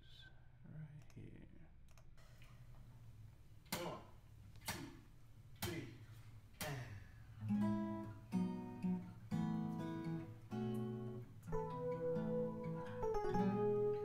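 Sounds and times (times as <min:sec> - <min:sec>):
acoustic guitar strumming: 0:07.4 - 0:14.0.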